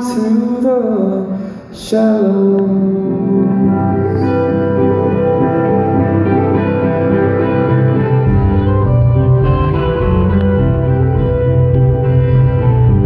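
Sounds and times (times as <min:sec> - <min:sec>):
sustained electric guitar notes: 0:02.8 - 0:13.0
live band playing: 0:03.3 - 0:13.0
deep bass: 0:06.1 - 0:13.0.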